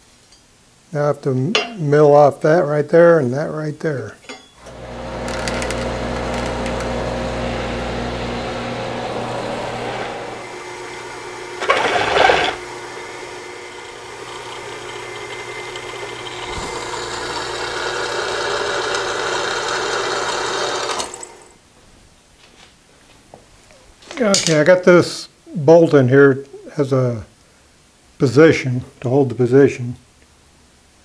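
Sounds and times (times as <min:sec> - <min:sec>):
milling machine cutting steel: 0:04.6 - 0:21.5.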